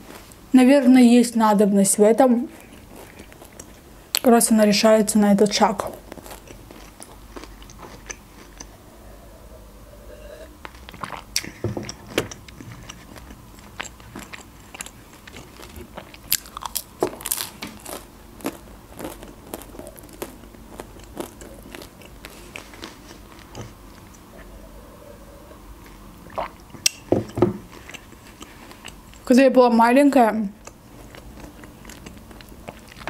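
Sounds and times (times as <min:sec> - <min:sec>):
chewing food: 0:02.5 - 0:04.3, 0:05.6 - 0:09.5, 0:10.1 - 0:29.3, 0:30.5 - 0:33.0
mouth clicks and smacks: 0:26.3 - 0:29.2.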